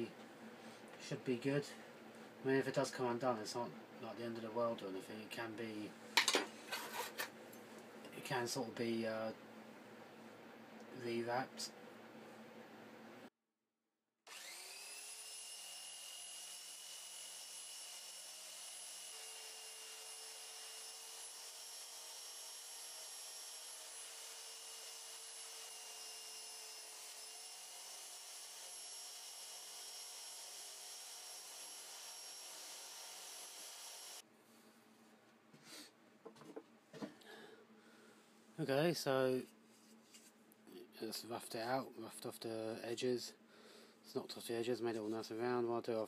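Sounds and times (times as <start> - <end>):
belt sander whining: 14.3 - 15.4.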